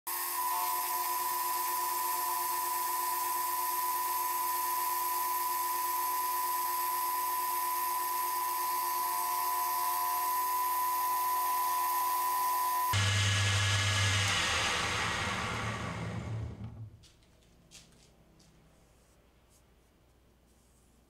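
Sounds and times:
milling machine whine: 0:00.1 - 0:16.9.

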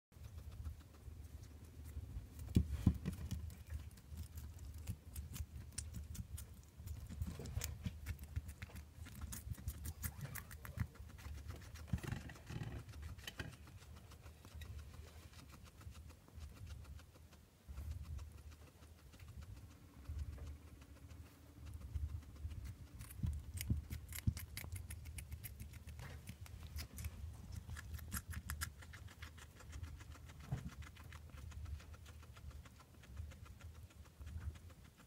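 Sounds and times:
guinea pig munching: 0:00.1 - 0:35.0.

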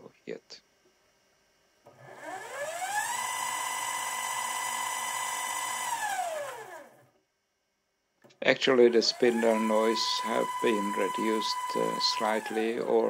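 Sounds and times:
lathe spindle whining: 0:01.9 - 0:07.0, 0:08.6 - 0:13.0.

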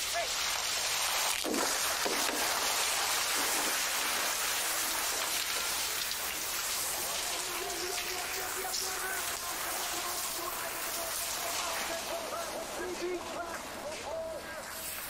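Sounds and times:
skis gliding on snow: 0:08.3 - 0:15.0.

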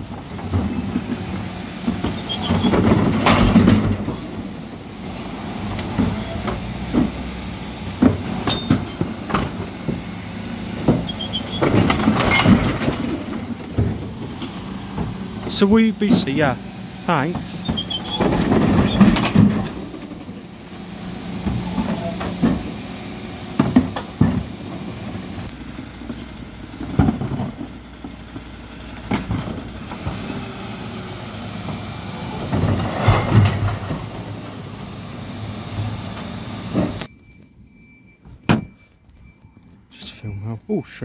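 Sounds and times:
lorry engine hum: 0:00.0 - 0:41.0
bins clattering against lift: 0:02.4 - 0:04.3, 0:10.8 - 0:14.2.

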